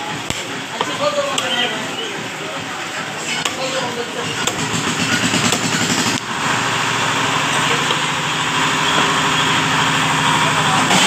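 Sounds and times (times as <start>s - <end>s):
small motor running: 3.9s - 11.0s.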